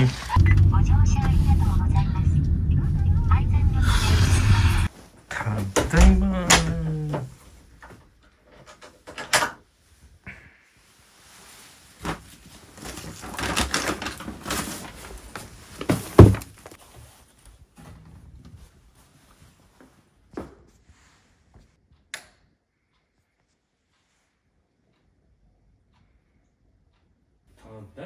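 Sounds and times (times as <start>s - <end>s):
heavy door thud: 5.8s - 6.8s
door clicks and knocks: 5.8s - 7.3s
rustling: 10.8s - 20.2s.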